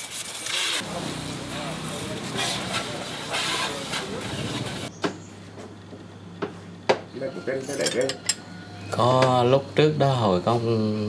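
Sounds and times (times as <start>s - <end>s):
hose water jet spraying: 0.0s - 4.9s.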